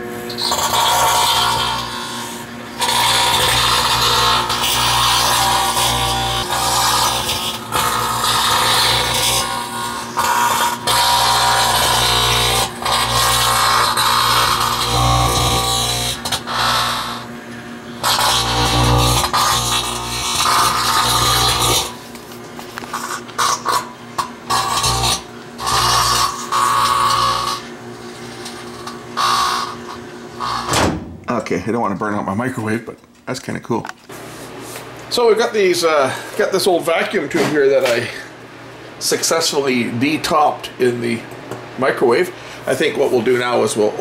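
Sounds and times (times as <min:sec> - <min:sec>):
harsh buzzing electrical arcing: 0:00.0 - 0:31.3
microwave transformer humming: 0:00.0 - 0:44.0.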